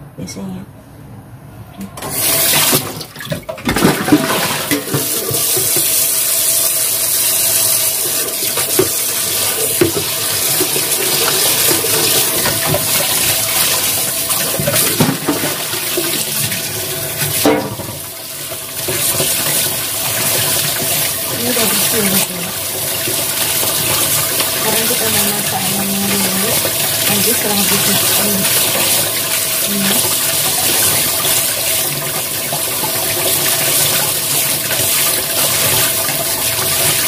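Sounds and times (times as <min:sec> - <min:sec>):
hands rinsing meat: 0:02.1 - 0:37.0
tap water splashing into steel bowl: 0:08.0 - 0:37.0.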